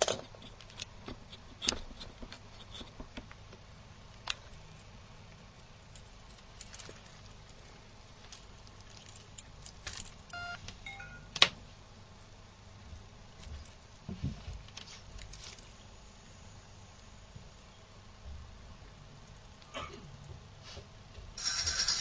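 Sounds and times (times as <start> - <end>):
electronic key beeps: 10.3 - 11.3.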